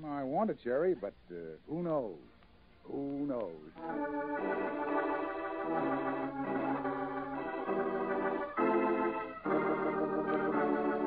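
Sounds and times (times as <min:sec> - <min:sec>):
organ sustained chords: 0:02.8 - 0:11.0.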